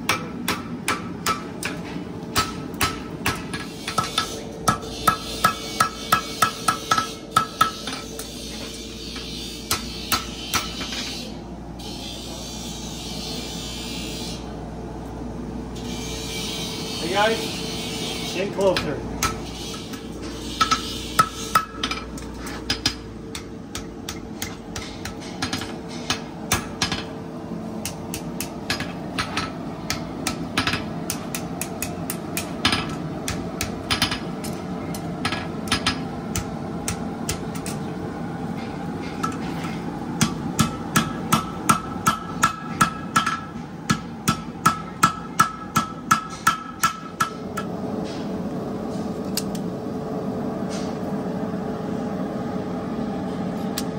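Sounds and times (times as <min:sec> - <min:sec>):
hammer striking horseshoe on anvil: 0:00.0 - 0:11.3, 0:18.6 - 0:27.1, 0:27.8 - 0:37.8, 0:38.6 - 0:47.7
steady hum: 0:00.0 - 0:53.9.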